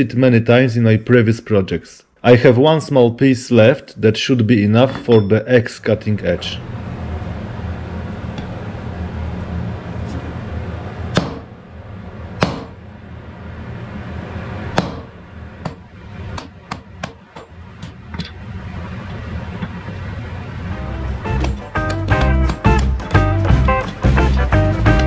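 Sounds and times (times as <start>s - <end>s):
steady low hum: 0.0s - 25.0s
hammer striking metal on anvil: 4.8s - 5.5s, 12.4s - 12.8s, 14.8s - 15.8s.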